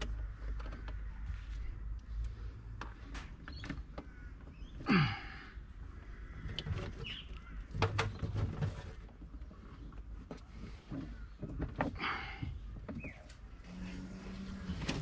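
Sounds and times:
wiring and hose rubbing: 6.5 - 15.0.

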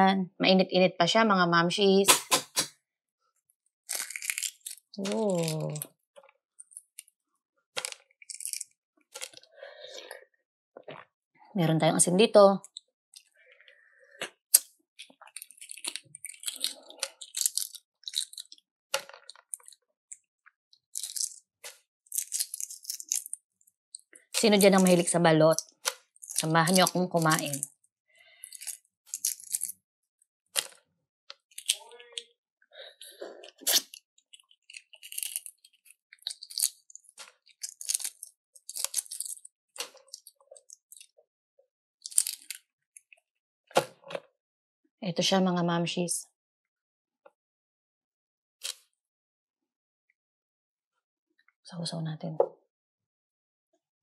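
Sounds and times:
food crunching: 3.9 - 6.0, 6.6 - 7.1, 7.8 - 9.5, 14.2 - 20.3, 20.9 - 29.8, 30.6 - 32.3, 33.0 - 41.1, 42.0 - 43.1.

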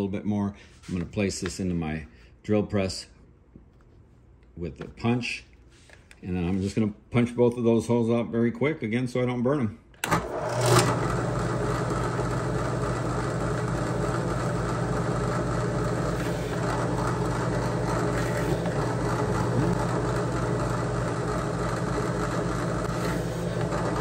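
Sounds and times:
drill press motor running: 10.0 - 24.0.

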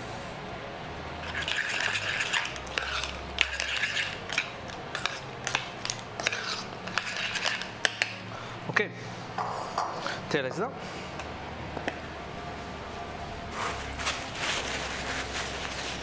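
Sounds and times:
utensils stirring in a saucepan: 1.2 - 8.2.

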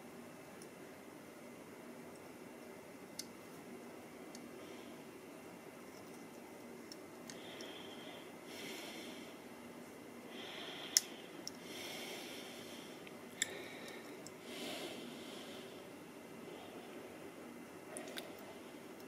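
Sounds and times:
faint breathing: 4.5 - 5.2, 7.3 - 9.5, 10.2 - 17.3.

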